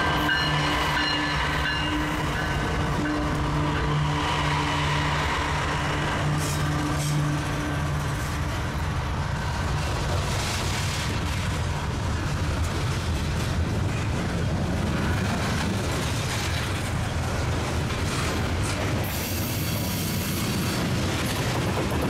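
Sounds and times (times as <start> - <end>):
train cars clattering: 0.0 - 22.0
train wheels rumbling on rails: 0.0 - 22.0.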